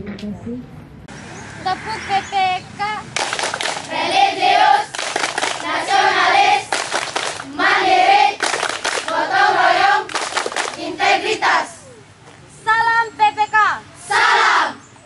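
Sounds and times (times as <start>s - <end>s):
hand claps: 3.2s - 3.9s, 4.9s - 5.7s, 6.6s - 7.5s, 8.3s - 9.2s, 10.1s - 10.8s
children singing together: 3.9s - 4.9s, 5.6s - 6.7s.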